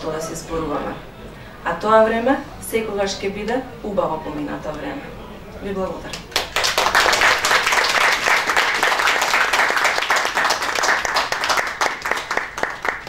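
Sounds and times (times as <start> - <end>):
audience applauding: 6.1 - 13.0.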